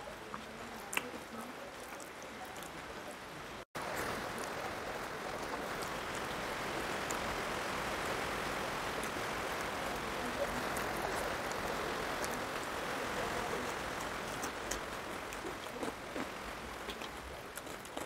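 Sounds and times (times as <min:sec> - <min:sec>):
chewing: 0:00.0 - 0:03.2, 0:09.0 - 0:18.0.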